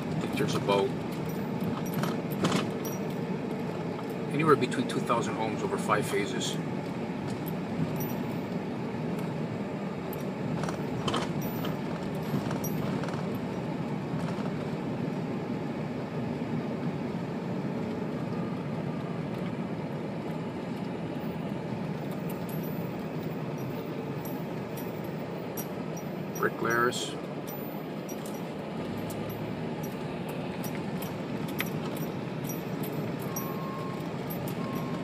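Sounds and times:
vehicle engine and tyre noise: 0:00.0 - 0:35.0.

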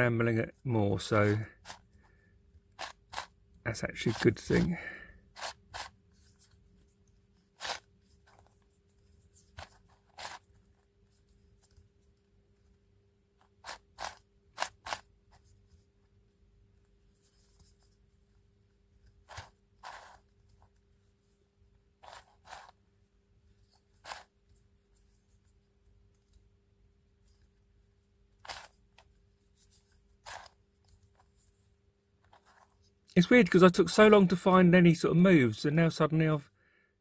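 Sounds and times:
puzzle cube clicking: 0:02.8 - 0:03.4, 0:07.6 - 0:07.9, 0:13.4 - 0:15.1, 0:28.4 - 0:29.1.

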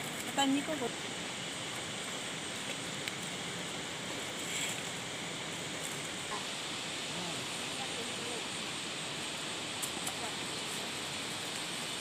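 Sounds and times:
river flowing over rocks: 0:00.0 - 0:12.0.

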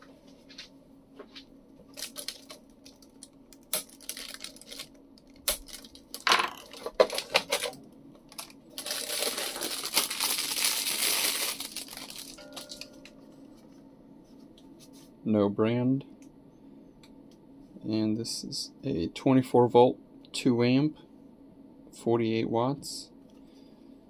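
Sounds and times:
plastic wrapping crinkling: 0:01.9 - 0:13.1.

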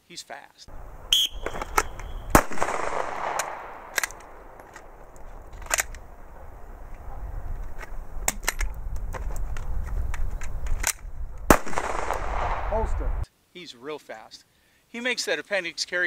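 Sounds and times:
pistol shots: 0:00.7 - 0:06.8, 0:11.5 - 0:13.2.

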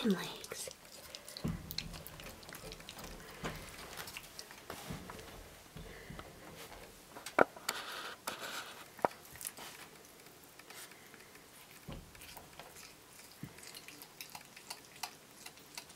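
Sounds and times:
wet chewing clicks: 0:00.0 - 0:05.3, 0:08.9 - 0:15.9
raccoon crunching bone: 0:00.0 - 0:15.9.

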